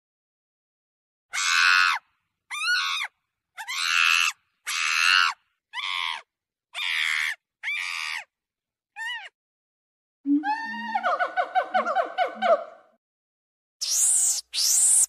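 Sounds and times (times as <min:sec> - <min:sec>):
monkey screaming: 0:01.3 - 0:08.3, 0:08.9 - 0:09.4, 0:13.8 - 0:15.0.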